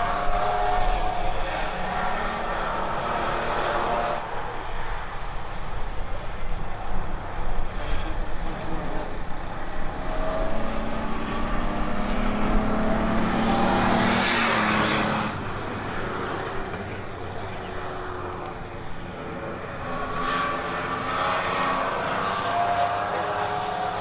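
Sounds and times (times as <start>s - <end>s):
race truck engine passing: 8.0s - 18.4s.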